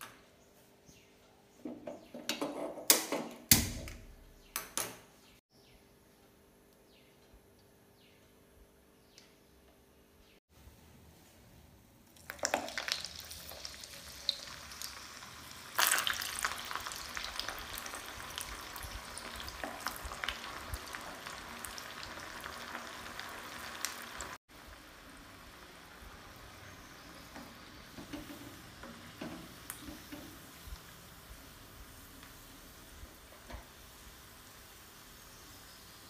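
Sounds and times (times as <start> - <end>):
food deep-frying in hot oil: 12.0 - 36.0.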